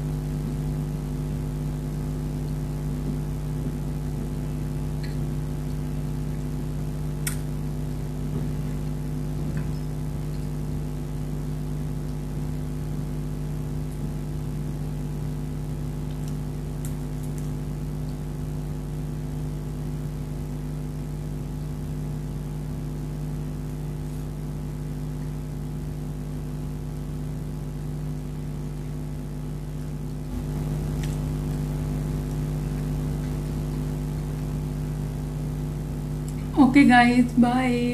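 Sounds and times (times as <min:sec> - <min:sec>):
motor humming: 0:30.1 - 0:37.9.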